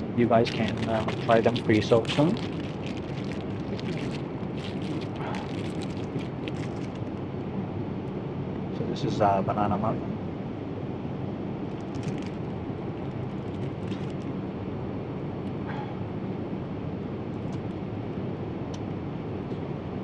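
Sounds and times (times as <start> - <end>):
airplane cabin hum: 0.0 - 20.0
faint ticks and rustles: 0.4 - 7.2, 11.7 - 14.3.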